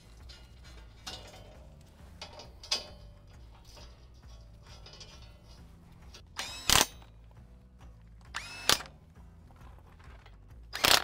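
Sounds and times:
power tool motor whining: 6.4 - 7.0, 8.4 - 8.9.

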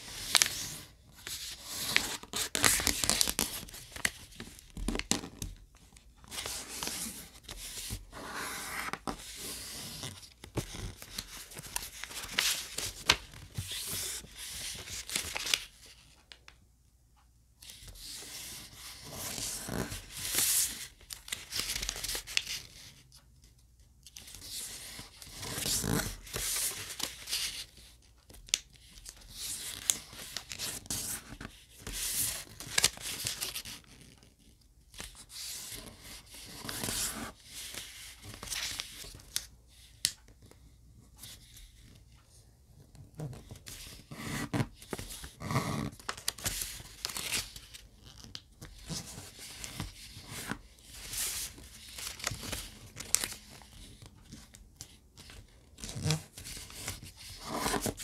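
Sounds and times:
paper rustling and crinkling: 0.0 - 16.3, 24.1 - 34.3, 42.9 - 58.0.

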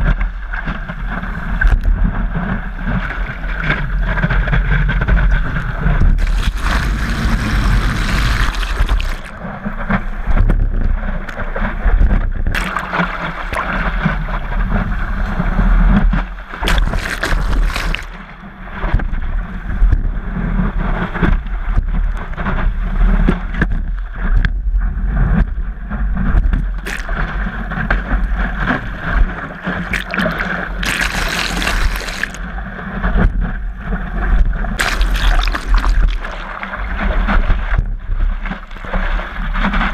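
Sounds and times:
water rushing along hull: 0.0 - 39.9
splashing spray: 6.2 - 9.4, 12.6 - 13.9, 16.6 - 18.3, 26.8 - 27.3, 29.9 - 32.4, 34.8 - 36.8, 38.6 - 39.1.

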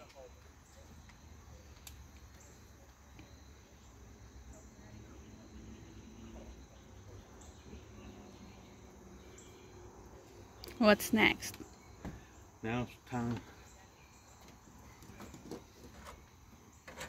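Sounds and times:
insects chirring: 0.0 - 17.0.

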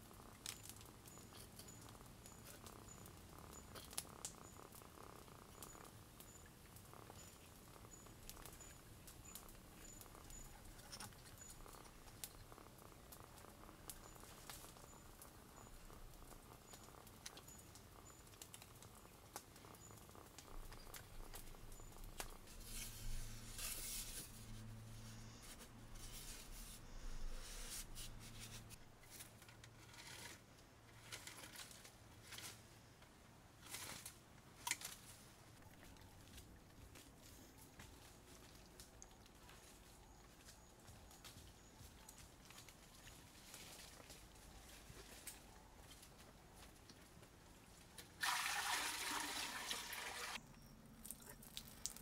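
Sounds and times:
faint rustling: 19.5 - 32.8.

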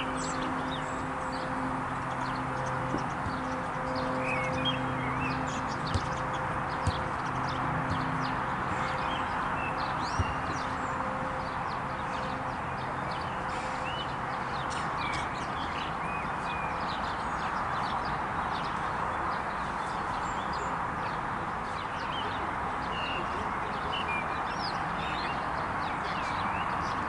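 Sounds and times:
rushing background noise: 0.0 - 17.0
small birds chirping: 0.0 - 27.0.

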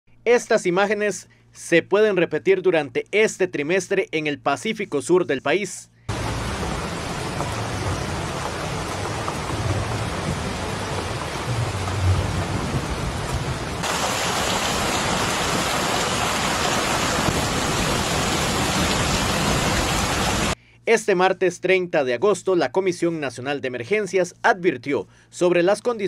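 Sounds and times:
heavy rain pouring: 6.1 - 20.6
rushing water: 6.1 - 20.6.

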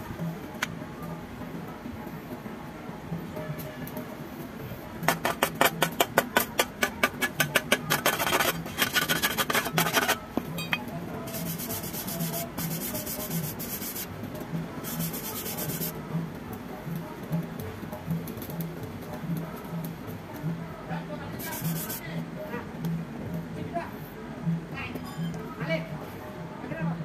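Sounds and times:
wire brush scraping steel: 5.1 - 14.1, 14.8 - 15.9, 21.4 - 22.1.

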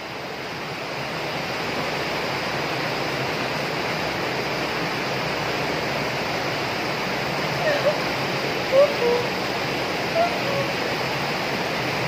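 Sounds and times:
stream water rushing over rocks: 0.0 - 12.0.

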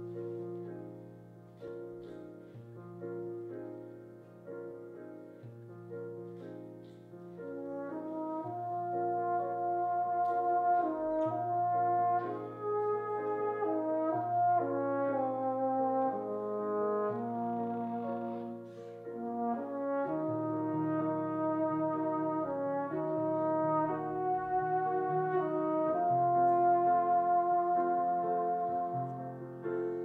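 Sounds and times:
piano playing chords: 0.0 - 30.0
brass horns melody: 7.4 - 30.0.

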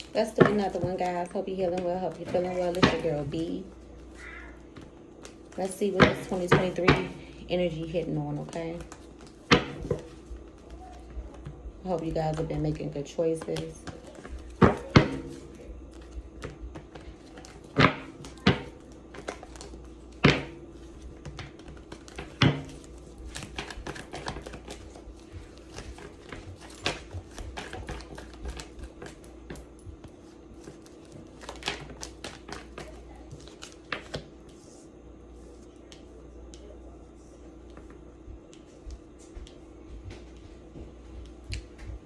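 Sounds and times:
cards shuffling and clicking: 8.3 - 34.6.

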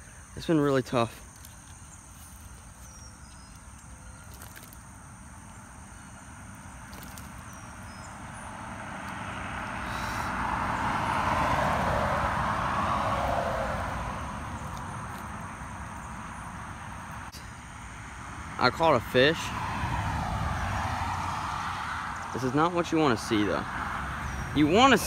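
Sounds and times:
vehicle passing: 5.3 - 25.0.

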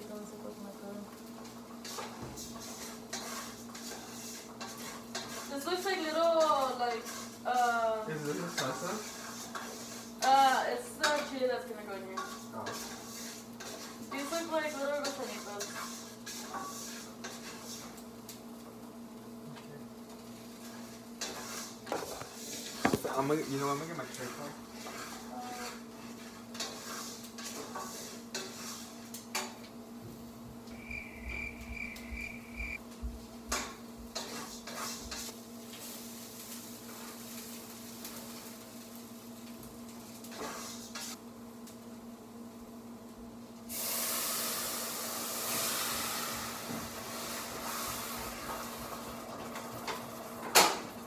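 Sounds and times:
food sizzling in hot pan: 0.0 - 51.0
steady low hum: 30.1 - 33.3.

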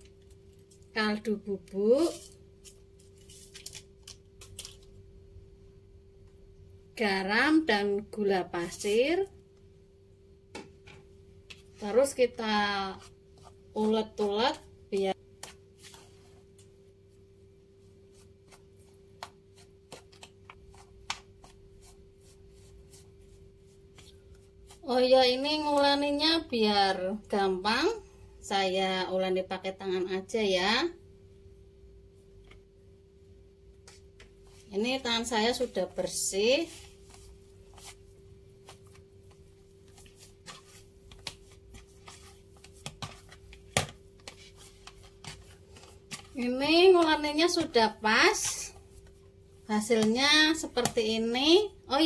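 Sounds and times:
faint steady hum: 0.0 - 52.0
hand kneading dough: 11.4 - 26.6, 33.8 - 52.0.

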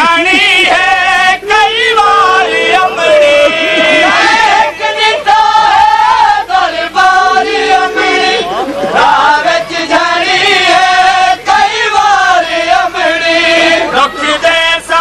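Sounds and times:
person singing a lament: 1.7 - 5.2, 7.0 - 9.7.

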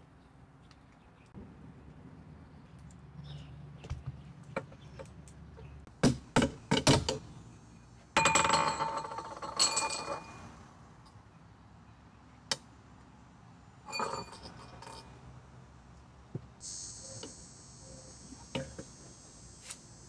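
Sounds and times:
ringing metallic jangling: 13.9 - 15.1.

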